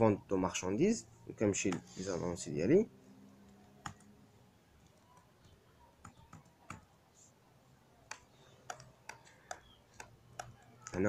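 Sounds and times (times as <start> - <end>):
mouse and keyboard clicking: 3.4 - 4.1, 4.8 - 6.9, 8.0 - 11.0.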